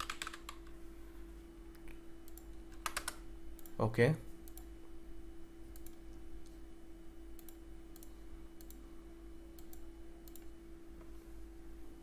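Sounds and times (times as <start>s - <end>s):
computer mouse clicking: 1.8s - 3.8s, 4.4s - 4.7s, 5.7s - 6.6s, 7.4s - 8.8s, 9.6s - 10.6s.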